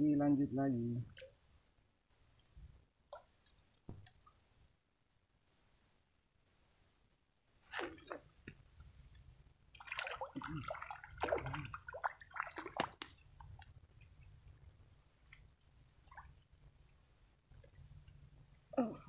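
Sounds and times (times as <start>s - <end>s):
fish splashing in water: 7.7s - 8.3s, 9.8s - 13.6s.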